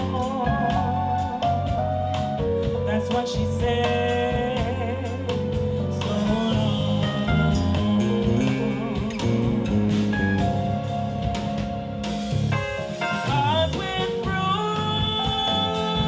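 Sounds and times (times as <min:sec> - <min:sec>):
woman singing into a microphone: 0:00.0 - 0:02.0, 0:02.6 - 0:10.1, 0:13.0 - 0:16.0
soul band playing: 0:00.0 - 0:16.0.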